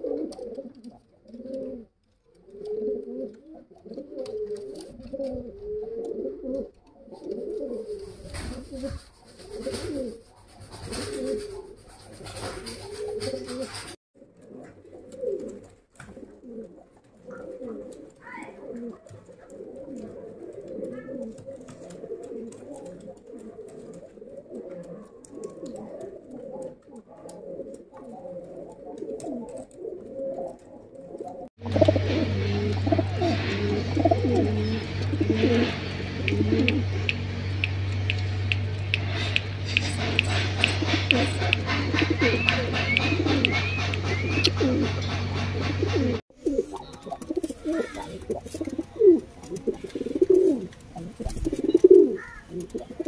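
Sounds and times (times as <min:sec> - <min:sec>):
pigeons cooing: 0:00.0 - 0:53.0.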